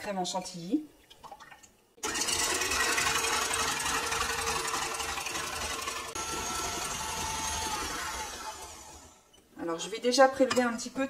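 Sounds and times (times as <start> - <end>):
stand mixer whisking cream: 2.0 - 9.2.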